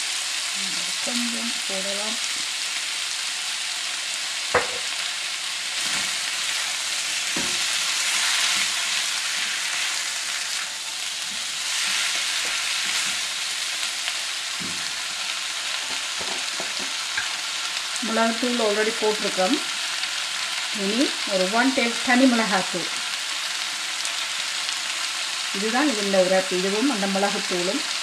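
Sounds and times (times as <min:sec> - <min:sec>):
food sizzling in oil: 0:00.0 - 0:28.0
sharp knock: 0:04.6 - 0:04.9.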